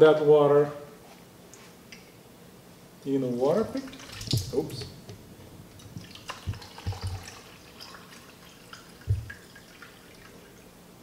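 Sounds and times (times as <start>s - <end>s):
water pouring and trickling: 3.8s - 4.8s, 5.8s - 10.7s
container thump: 4.2s - 5.2s, 9.1s - 9.3s
soft knocks of containers: 5.9s - 7.3s, 9.1s - 9.4s.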